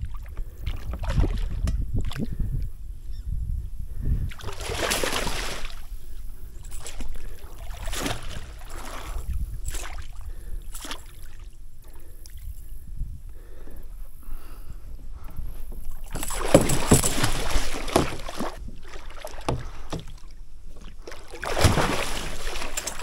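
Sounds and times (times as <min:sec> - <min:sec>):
fish thrashing and splashing water: 0:04.3 - 0:05.9, 0:06.7 - 0:11.5, 0:16.0 - 0:23.0.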